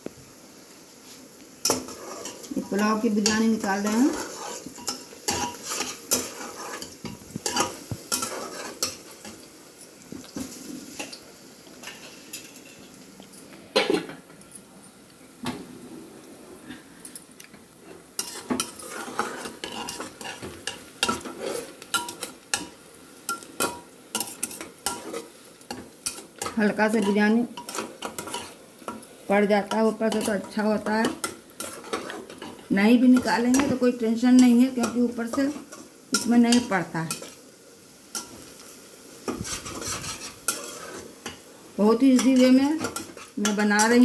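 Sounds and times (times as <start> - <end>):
onions sizzling in oil: 0.0 - 14.3, 15.0 - 44.0
ladle scraping metal pot: 18.2 - 20.4, 39.3 - 41.1.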